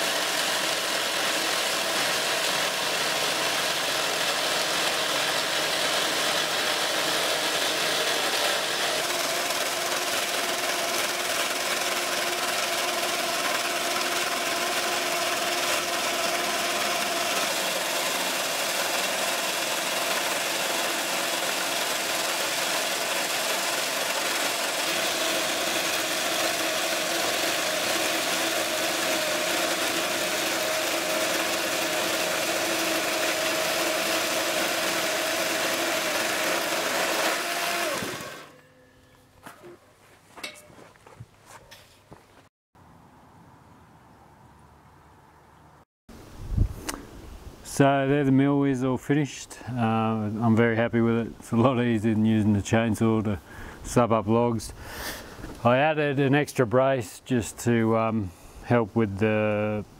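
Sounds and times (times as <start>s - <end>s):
electric chainsaw cutting log: 0.0s - 39.8s.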